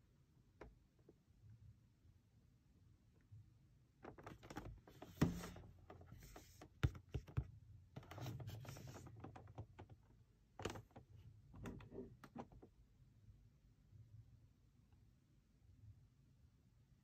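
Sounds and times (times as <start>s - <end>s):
fingers tapping on cardboard: 6.8s - 7.5s.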